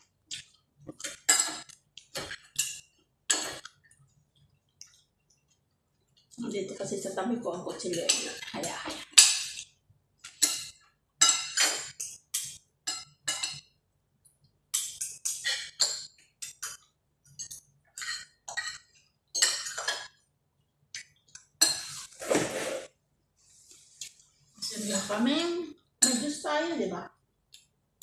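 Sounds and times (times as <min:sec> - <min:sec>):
cutlery scraping ceramic plates: 0:00.9 - 0:03.7, 0:07.8 - 0:13.6, 0:14.8 - 0:16.8, 0:17.4 - 0:20.1, 0:21.6 - 0:22.9.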